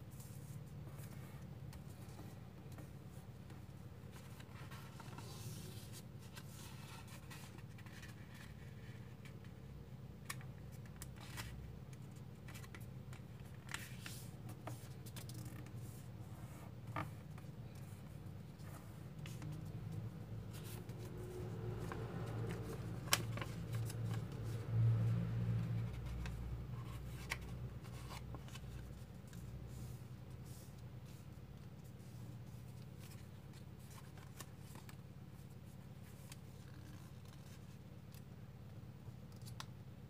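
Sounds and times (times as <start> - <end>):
paper rustling and crinkling: 3.6 - 9.5, 20.4 - 24.6.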